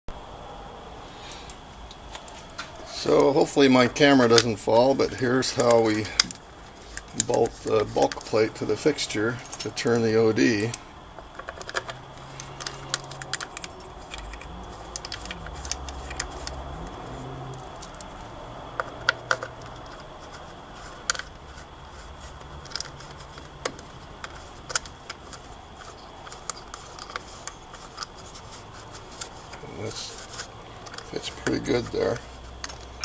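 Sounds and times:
faint low hum: 0.1 - 33.0
metallic clinks of bolts and nuts: 9.3 - 10.8, 11.4 - 16.6.

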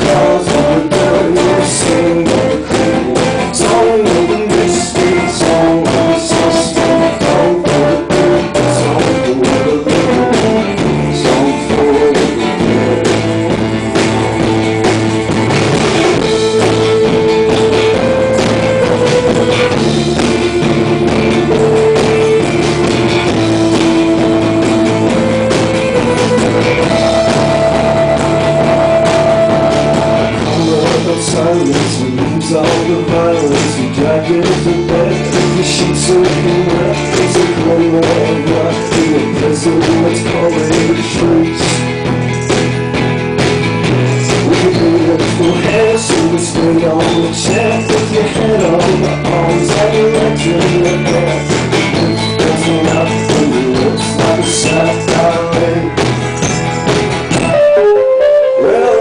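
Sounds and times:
strummed acoustic guitar: 0.0 - 57.6
drums: 0.0 - 59.0
melody of long held notes: 13.3 - 30.6, 56.4 - 59.0.

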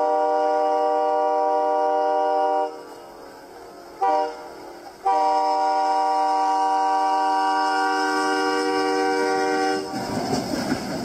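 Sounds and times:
train air horn blasts: 0.0 - 10.0.

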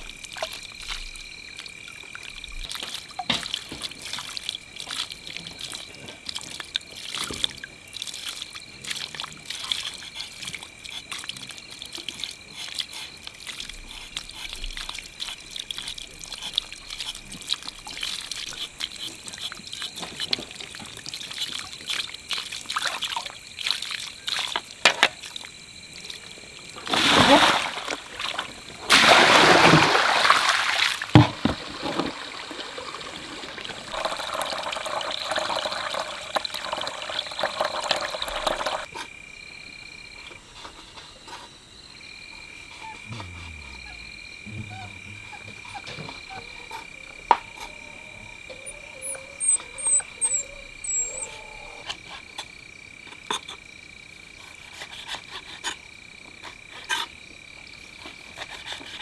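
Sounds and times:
water sloshing in plastic basin: 26.7 - 36.8
water rushing: 26.8 - 38.9
frogs croaking: 41.2 - 54.4
high-pitched insect drone: 42.0 - 51.9.

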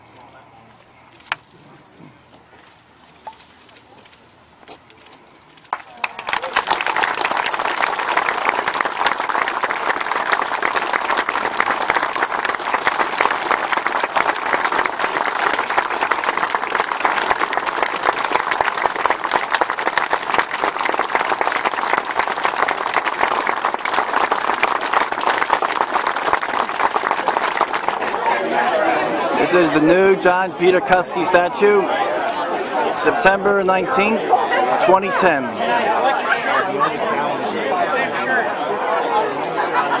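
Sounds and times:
crowd applauding: 5.7 - 31.8.

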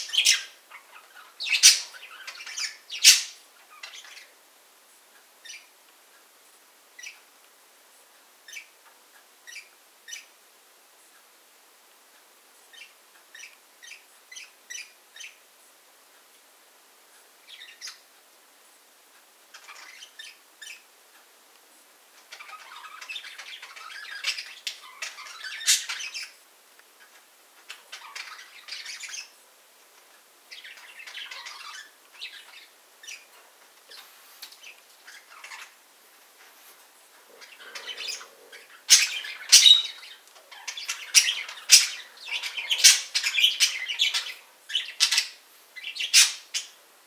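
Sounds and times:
budgerigars chattering: 0.0 - 4.3, 37.2 - 46.8
budgerigar squawks: 37.3 - 45.4.

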